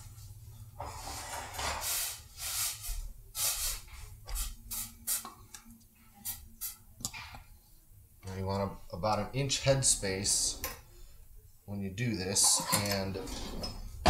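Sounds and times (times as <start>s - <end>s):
rustling and scraping: 0.0s - 4.5s.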